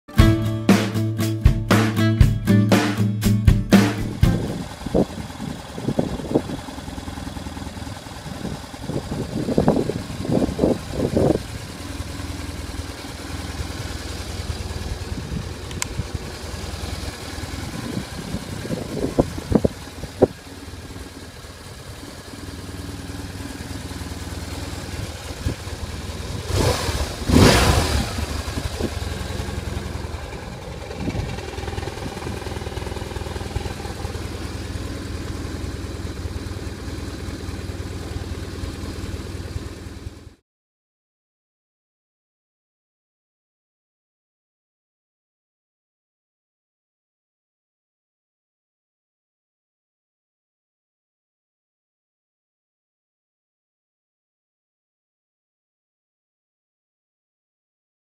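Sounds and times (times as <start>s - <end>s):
motorcycle engine idling and revving: 0.1s - 40.4s.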